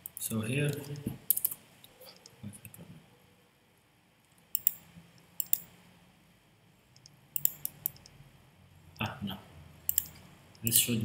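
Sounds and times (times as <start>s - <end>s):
computer mouse clicks: 4.2s - 5.7s, 7.0s - 8.1s, 9.9s - 10.8s.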